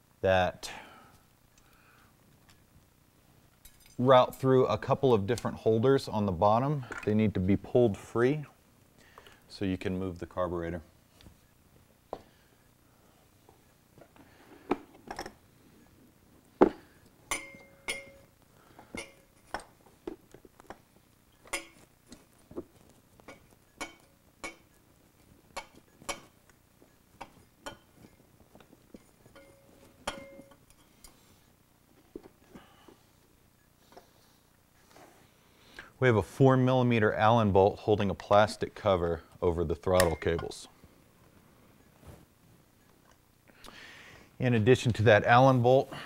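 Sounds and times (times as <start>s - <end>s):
clicks and clinks of parts: 27.2s - 31.2s.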